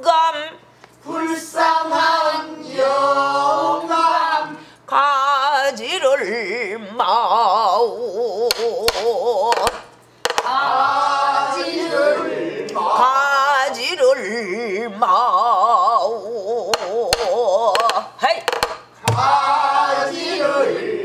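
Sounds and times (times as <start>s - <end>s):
woman singing with wide vibrato: 3.7s - 10.9s, 12.8s - 18.3s.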